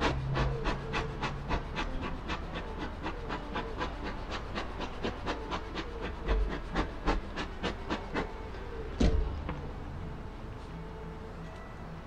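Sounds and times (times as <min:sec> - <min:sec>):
thump: 0:09.0 - 0:09.6.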